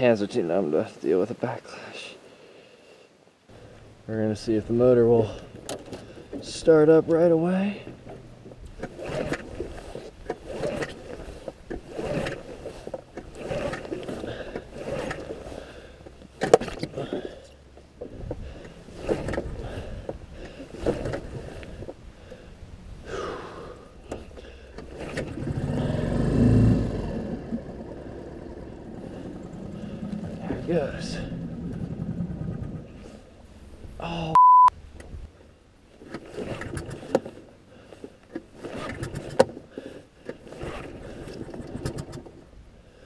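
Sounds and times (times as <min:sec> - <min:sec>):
starter cord scraping pulls: 0:05.2 - 0:22.4, 0:24.0 - 0:33.3, 0:36.0 - 0:42.5
outboard motor rumble: 0:07.8 - 0:34.0.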